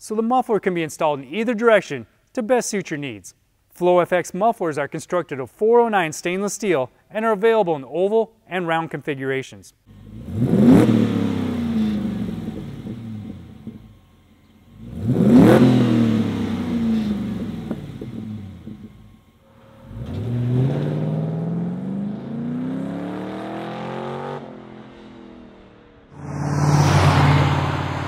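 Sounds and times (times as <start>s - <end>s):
truck engine revving: 9.9s - 14.0s, 14.7s - 19.2s, 19.8s - 24.5s, 26.2s - 28.0s
truck accelerating away: 9.9s - 28.0s.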